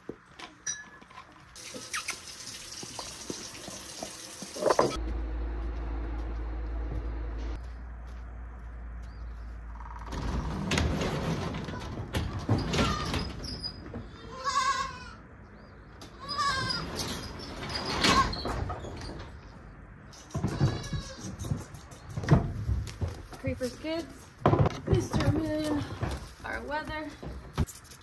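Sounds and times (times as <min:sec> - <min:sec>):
garage door rattling open: 0:10.0 - 0:13.9, 0:16.6 - 0:19.5
goat kids bleating: 0:14.1 - 0:15.2, 0:16.1 - 0:16.8, 0:20.4 - 0:21.4.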